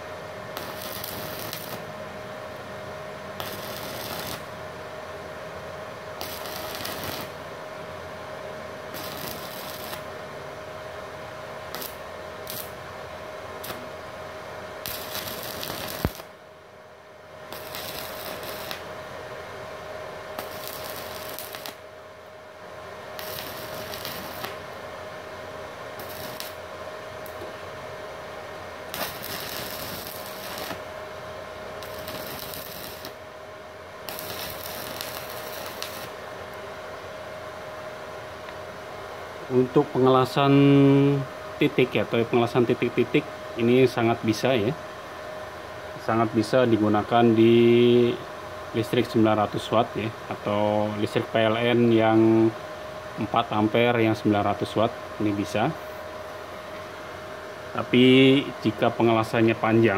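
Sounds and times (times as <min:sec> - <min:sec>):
welding arc crackling: 0:00.5 - 0:01.9, 0:03.3 - 0:04.6, 0:06.1 - 0:07.5, 0:08.8 - 0:10.2, 0:11.6 - 0:12.9, 0:13.6 - 0:16.4, 0:17.4 - 0:19.0, 0:20.3 - 0:22.0, 0:23.0 - 0:24.8, 0:25.9 - 0:27.6, 0:28.8 - 0:30.9, 0:31.7 - 0:33.4, 0:34.0 - 0:36.7.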